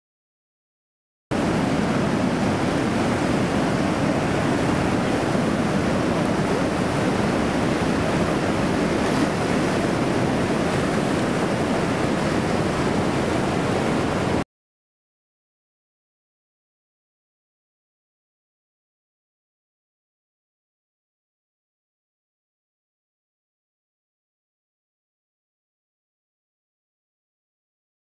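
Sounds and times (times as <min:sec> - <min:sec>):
river rushing through whitewater: 0:01.4 - 0:14.4.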